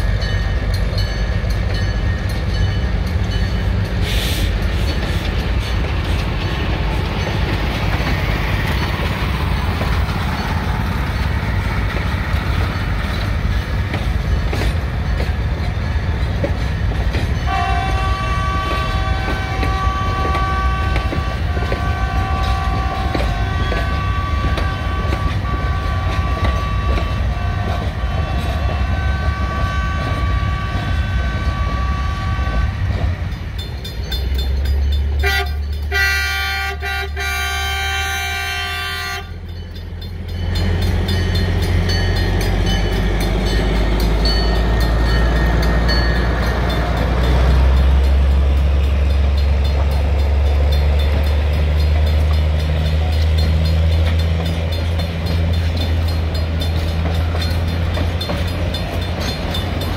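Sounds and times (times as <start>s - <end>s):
locomotive rumbling: 0.0s - 59.9s
train cars rumbling past: 0.0s - 59.9s
train wheel clicks: 0.2s - 36.0s, 39.4s - 59.9s
locomotive horn: 17.4s - 33.1s, 35.2s - 39.4s
multi-note train whistle: 17.5s - 32.8s, 35.2s - 39.4s.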